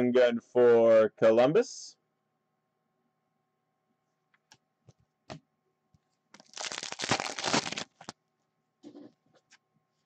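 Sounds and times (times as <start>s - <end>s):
cards rustling and shuffling: 6.4s - 8.1s.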